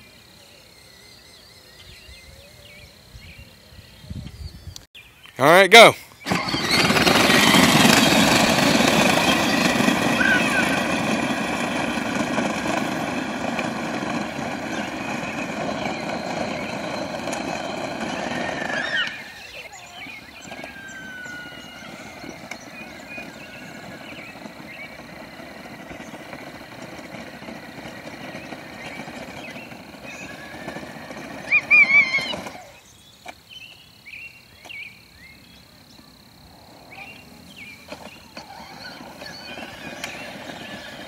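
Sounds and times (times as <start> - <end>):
birds chirping: 0.0 - 41.0
steady rushing noise: 7.1 - 19.6, 20.2 - 31.7.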